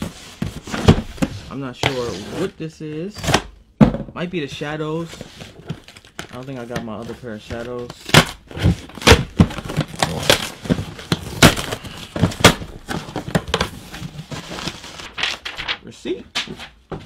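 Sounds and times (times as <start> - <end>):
cardboard rustling: 4.5 - 17.0
packing tape ripping: 9.0 - 11.9.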